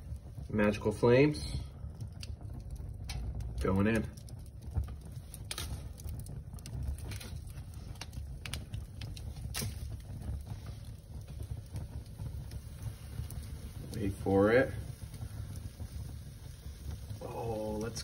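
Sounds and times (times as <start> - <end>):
wood fire crackling: 0.0 - 18.0
sharp pops: 2.0 - 14.0.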